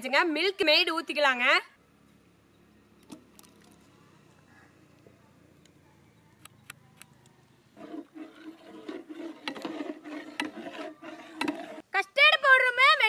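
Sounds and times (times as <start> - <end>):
milk swishing as stirred: 7.7 - 11.9.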